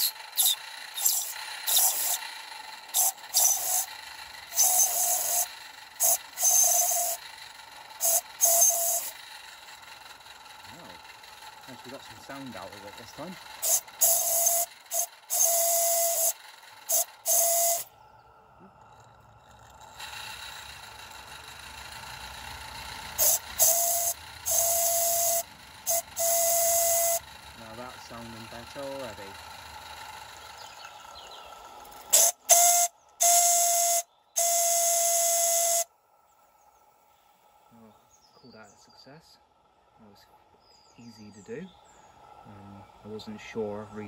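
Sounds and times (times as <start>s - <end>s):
steam locomotive running: 0.0s - 17.9s, 19.4s - 35.9s
steam whistle blasts: 3.0s - 3.9s, 4.5s - 7.2s, 8.0s - 9.2s, 13.6s - 17.9s, 23.2s - 27.2s, 32.1s - 35.9s.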